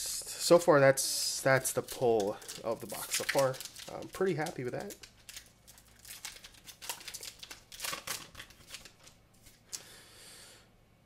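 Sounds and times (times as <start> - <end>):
foil card pack crinkling: 1.4 - 9.7.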